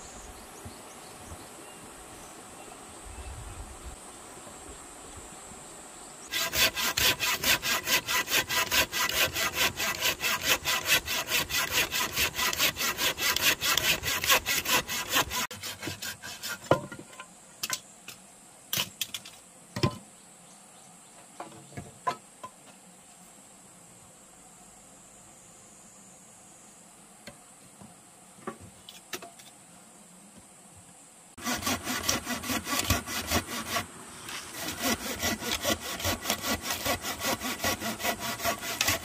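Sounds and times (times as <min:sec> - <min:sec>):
hand saw cutting wood: 0:06.3 - 0:17.0, 0:31.4 - 0:39.0.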